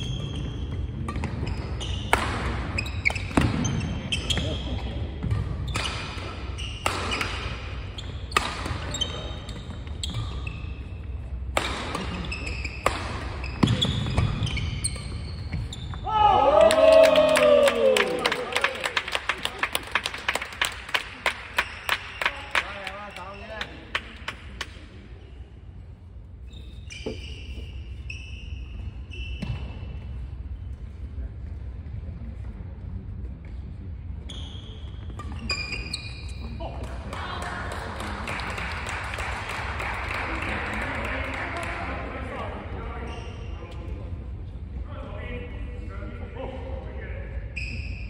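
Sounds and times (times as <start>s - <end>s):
sneakers squeaking on wooden floor: 0.0s - 11.3s, 12.0s - 16.1s, 26.4s - 30.1s, 34.2s - 36.7s, 43.0s - 43.6s
rackets striking shuttlecock: 5.2s - 7.6s, 11.4s - 15.2s.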